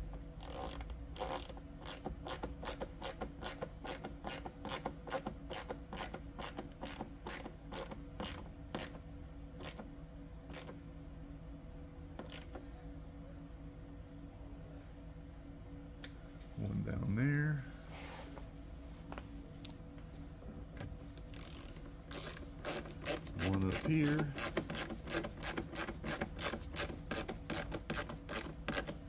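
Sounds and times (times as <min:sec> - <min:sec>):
hand ratchet clicking: 0:00.4 - 0:09.0, 0:21.3 - 0:29.0.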